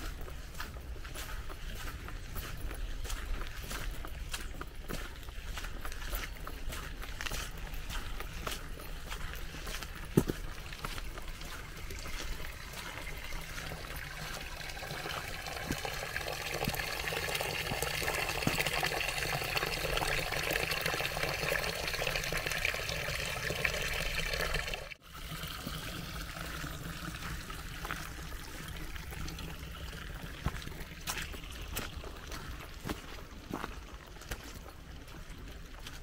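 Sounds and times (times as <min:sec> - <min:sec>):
stream water rushing: 0:10.8 - 0:32.4.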